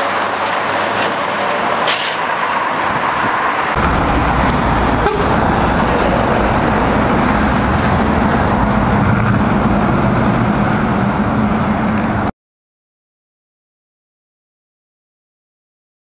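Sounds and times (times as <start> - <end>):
road noise: 0.0 - 12.3
truck diesel engine passing: 0.1 - 12.3.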